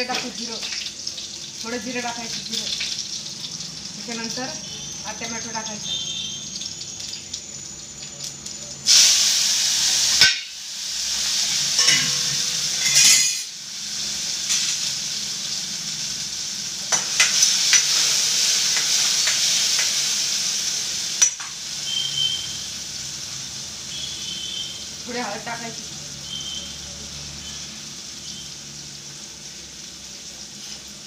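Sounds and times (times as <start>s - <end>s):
food sizzling in hot oil: 0.0s - 31.0s
metal clinks in pan: 11.8s - 13.5s.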